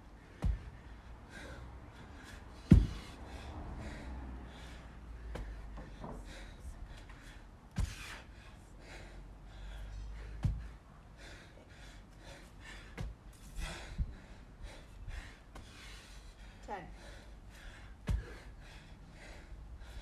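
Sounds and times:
man gasping breaths: 0.1s - 20.0s
dull thumps: 2.7s - 3.1s, 10.3s - 10.8s, 18.0s - 18.4s.

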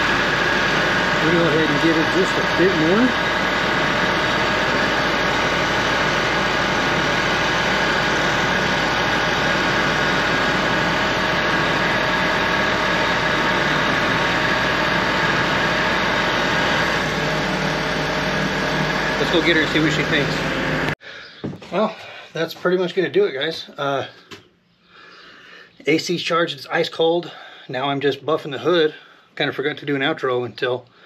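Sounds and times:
ac compressor running: 0.0s - 21.1s.

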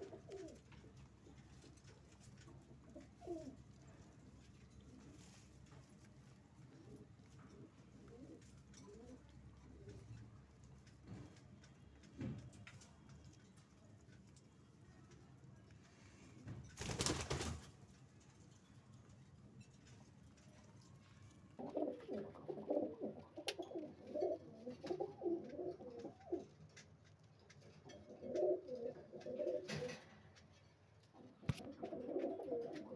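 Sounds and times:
pigeons cooing: 0.0s - 0.7s, 2.8s - 3.6s, 21.6s - 26.5s, 28.1s - 30.0s, 31.2s - 32.9s.

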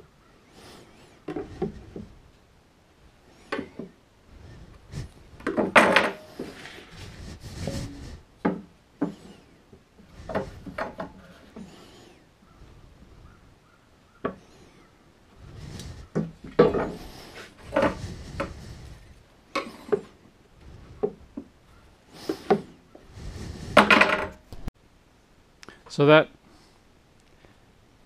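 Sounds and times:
wood and metal scraping: 0.0s - 2.4s, 3.3s - 12.3s, 14.1s - 24.7s
wood and metal parts knocking: 5.4s - 6.7s, 10.2s - 11.7s, 16.1s - 18.6s, 23.7s - 24.4s.

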